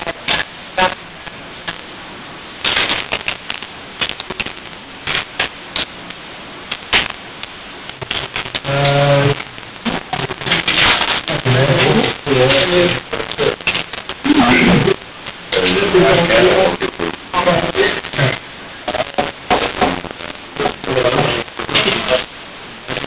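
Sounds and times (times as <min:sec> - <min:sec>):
low voices: 0:08.1 - 0:22.3.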